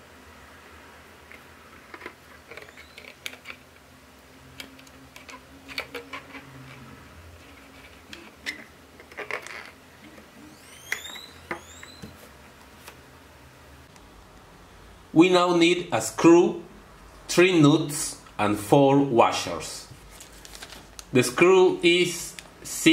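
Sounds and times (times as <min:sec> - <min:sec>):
rubber squeaks: 0:01.9 - 0:03.6, 0:05.2 - 0:12.3.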